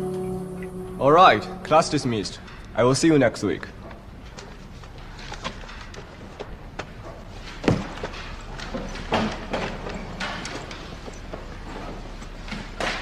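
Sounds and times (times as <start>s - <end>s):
knocks and clatter of desks: 3.8s - 13.0s.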